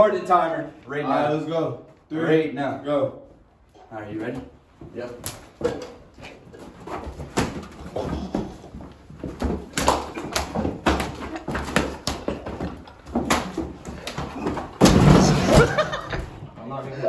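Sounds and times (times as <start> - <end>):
thuds and slaps of bodies: 6.8 - 16.1.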